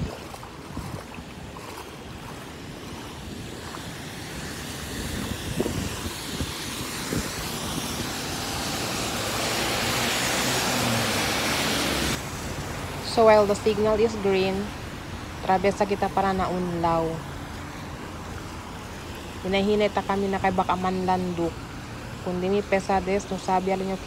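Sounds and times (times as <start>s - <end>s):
footsteps splashing through water: 0.0s - 8.0s
heavy splashes: 0.0s - 13.1s
rushing wind and water: 0.0s - 24.0s.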